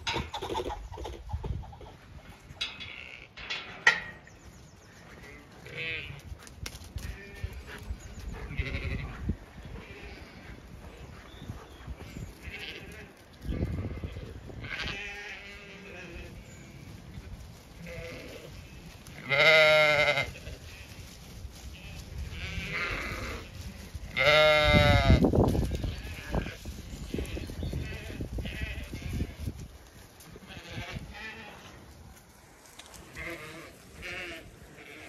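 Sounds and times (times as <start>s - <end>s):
sheep bleating: 5.2s - 6.2s, 8.4s - 9.2s, 12.4s - 16.4s, 17.8s - 18.6s, 19.2s - 21.0s, 21.7s - 26.6s, 30.4s - 31.8s, 33.1s - 35.0s.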